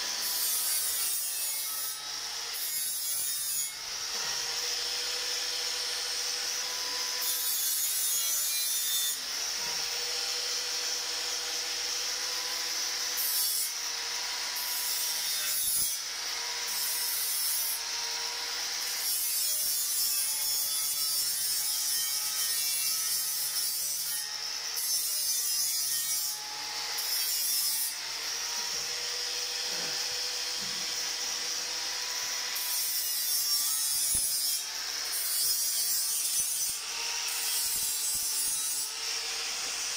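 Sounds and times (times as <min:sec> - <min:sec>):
angle grinder motor whine: 0:28.0 - 0:32.6.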